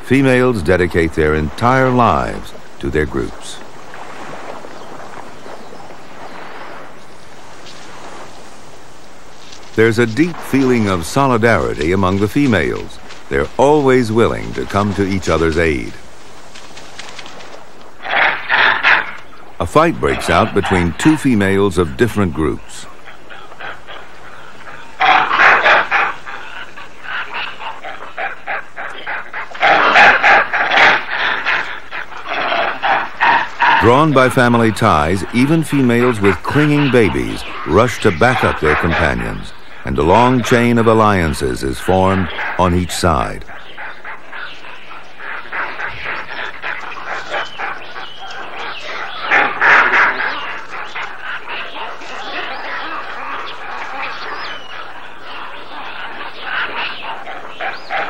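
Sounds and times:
monkeys screaming: 0:18.1 - 0:58.0.

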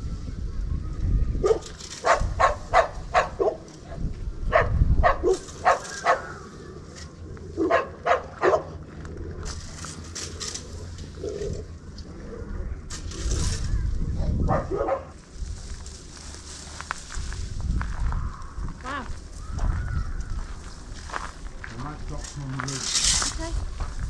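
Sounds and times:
dog barking: 0:01.4 - 0:03.6, 0:04.5 - 0:06.3, 0:07.6 - 0:08.7, 0:14.4 - 0:15.2.

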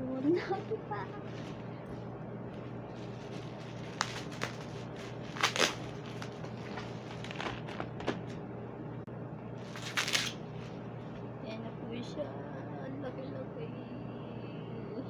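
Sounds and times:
bubble wrap crinkling and crackling: 0:00.2 - 0:08.4, 0:09.6 - 0:10.8.

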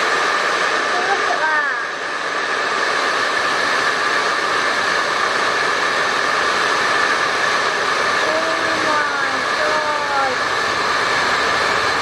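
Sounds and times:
hairdryer blowing: 0:00.0 - 0:12.0.

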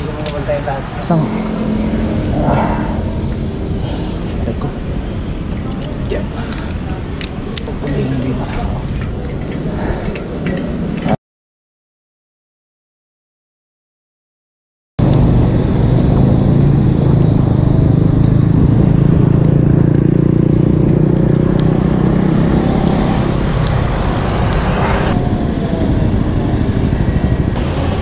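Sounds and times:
vehicle engines humming: 0:00.0 - 0:10.3, 0:15.0 - 0:28.0.

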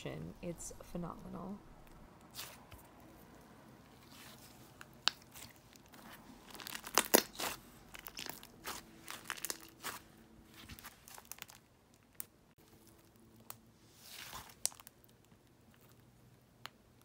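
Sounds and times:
slime squeezed by hand: 0:04.0 - 0:11.6, 0:14.0 - 0:14.9
crackly slime pops and clicks: 0:06.6 - 0:10.0.

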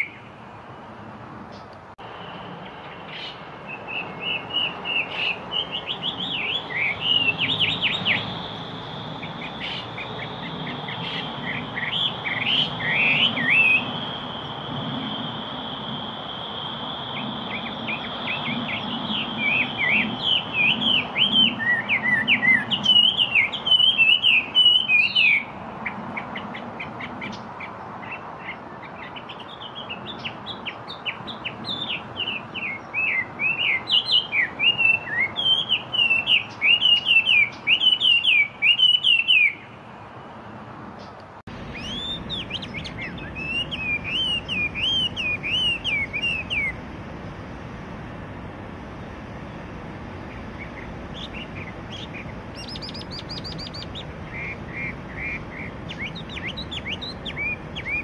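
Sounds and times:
bird singing sliding notes: 0:02.3 - 0:27.5, 0:41.0 - 0:58.0.

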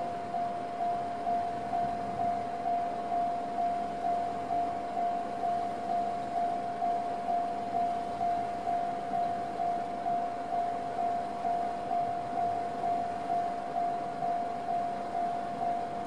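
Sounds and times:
level-crossing warning alarm: 0:00.0 - 0:16.0.

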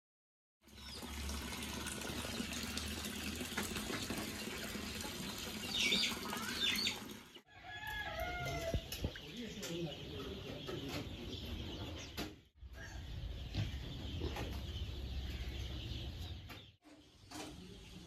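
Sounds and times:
chicken calls: 0:05.0 - 0:16.7.

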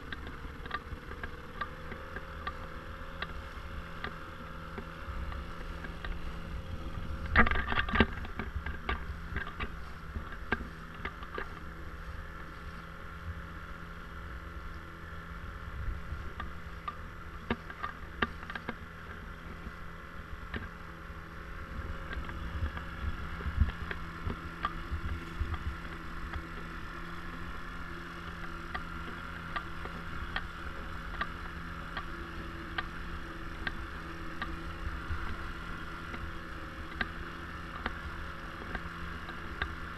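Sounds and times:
faint steady hum: 0:00.0 - 0:39.9
wind buffeting microphone: 0:15.5 - 0:16.7, 0:21.6 - 0:26.1.

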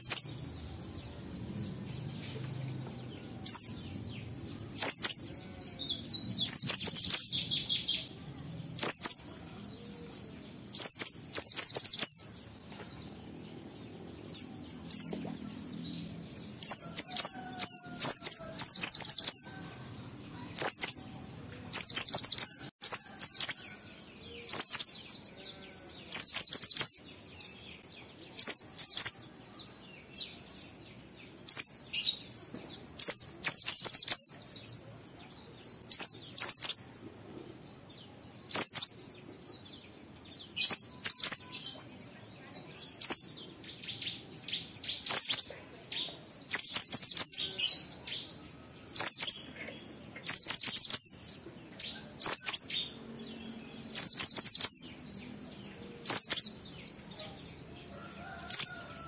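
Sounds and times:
bird twittering: 0:04.8 - 0:08.0, 0:08.8 - 0:09.3, 0:10.7 - 0:12.3, 0:56.0 - 0:56.5.

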